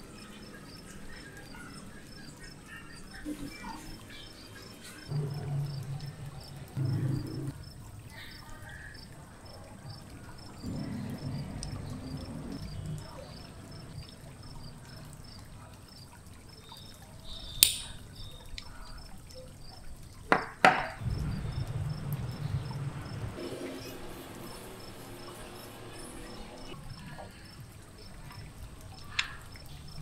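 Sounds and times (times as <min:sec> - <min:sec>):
cricket-like chirping: 0:00.0 - 0:30.0
toy parts clicking together: 0:17.6 - 0:18.0.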